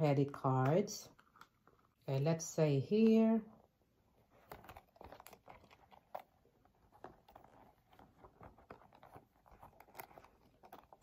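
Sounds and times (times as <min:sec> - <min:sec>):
faint rustling of handbag: 0:04.1 - 0:11.0.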